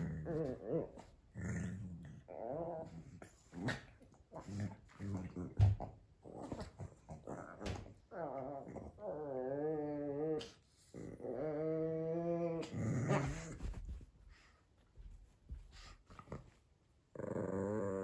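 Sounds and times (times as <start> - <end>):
dog growling: 0.0 - 5.6, 6.2 - 13.8, 17.1 - 18.0.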